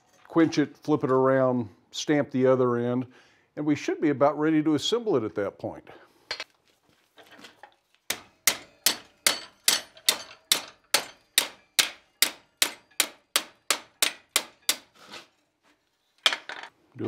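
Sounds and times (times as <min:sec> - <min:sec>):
hammer striking hot steel: 0:08.1 - 0:14.9.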